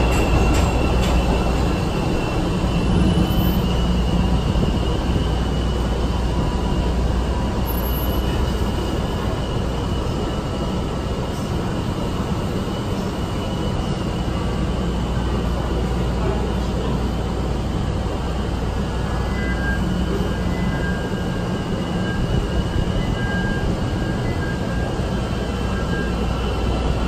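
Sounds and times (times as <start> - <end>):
train rumbling into platform: 0.0 - 27.0.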